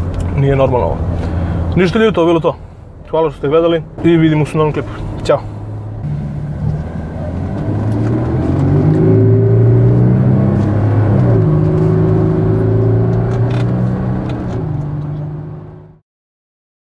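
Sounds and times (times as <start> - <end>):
diesel engine accelerating: 3.8 - 16.0.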